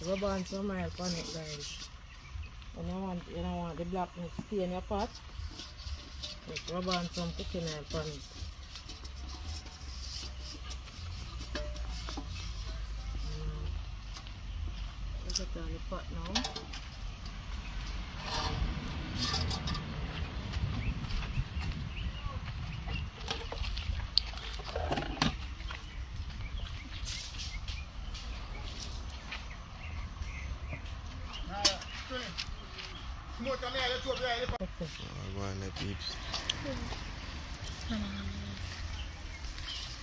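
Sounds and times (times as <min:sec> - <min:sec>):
hand rubbing oil on pot: 0:00.0 - 0:02.0, 0:04.8 - 0:13.9
wind rumble on microphone: 0:17.2 - 0:31.5.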